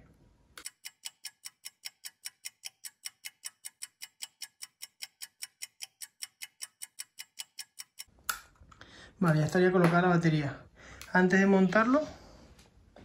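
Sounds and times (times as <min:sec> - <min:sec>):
clock-like ticking: 0:00.6 - 0:08.1.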